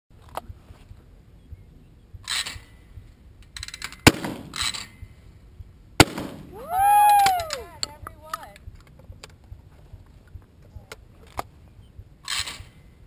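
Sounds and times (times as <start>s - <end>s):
shotgun shots: 4.1s - 4.8s, 6.0s - 6.5s.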